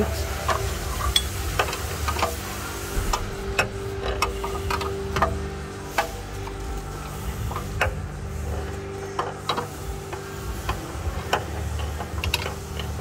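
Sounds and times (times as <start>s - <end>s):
steady low hum: 0.0s - 13.0s
wrench metal clicks: 0.5s - 2.4s.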